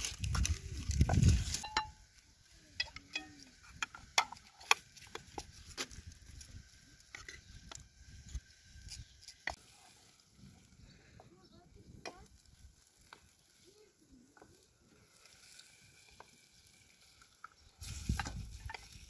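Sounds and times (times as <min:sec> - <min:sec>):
wooden spoon scraping steel pot: 0:02.7 - 0:10.1.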